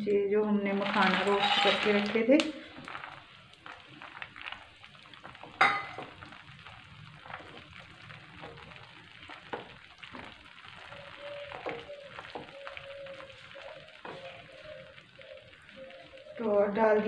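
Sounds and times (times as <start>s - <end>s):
spatula scraping in pan: 0.7s - 4.6s, 9.3s - 15.0s.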